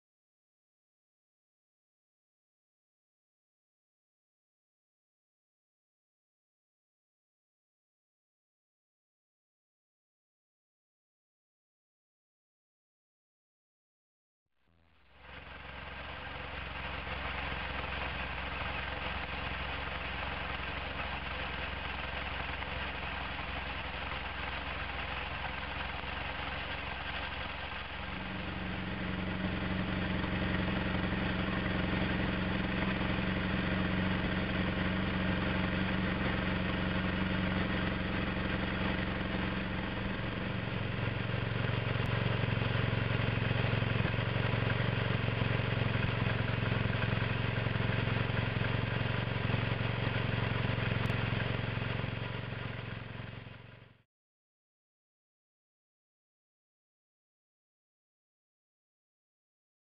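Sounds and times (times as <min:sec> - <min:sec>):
motorcycle engine idling: 0:14.7 - 0:54.0.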